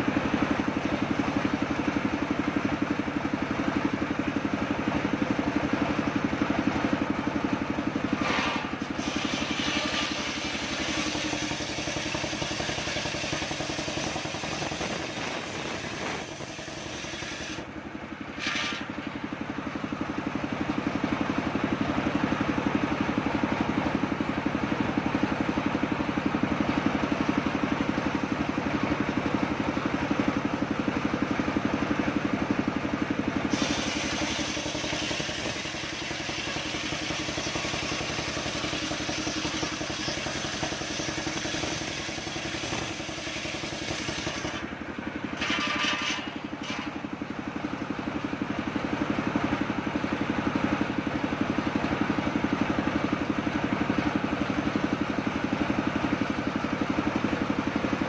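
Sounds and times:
sawmill engine chugging: 0.0 - 58.0
saw blade cutting log: 8.2 - 17.7, 18.3 - 19.0, 33.5 - 44.7, 45.4 - 47.0.

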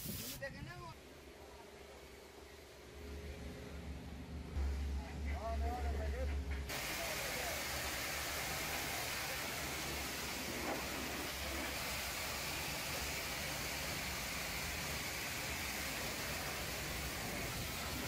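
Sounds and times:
pressure washer jetting water: 0.0 - 0.4, 6.7 - 18.0.

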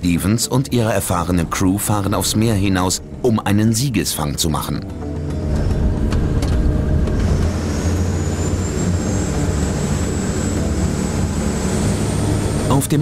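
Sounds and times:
boat engines droning: 0.0 - 13.0
faint high whine: 6.4 - 13.0.

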